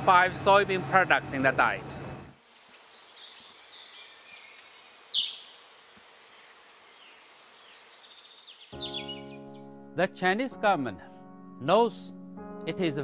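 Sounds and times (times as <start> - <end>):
high insect hiss: 2.4 - 8.8
falling bird chirps: 2.4 - 9.9.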